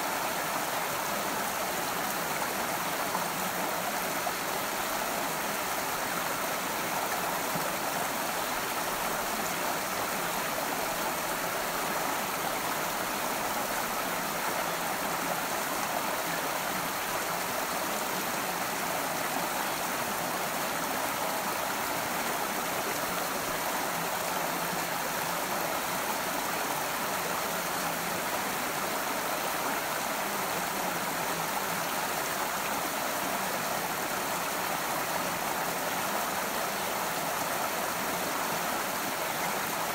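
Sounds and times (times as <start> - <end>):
stream flowing: 0.0 - 39.9.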